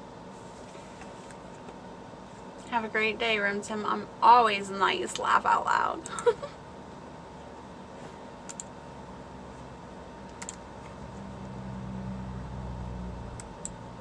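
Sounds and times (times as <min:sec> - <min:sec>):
low room hum: 0:00.0 - 0:14.0
keyboard clicks: 0:08.5 - 0:08.7, 0:10.3 - 0:10.6.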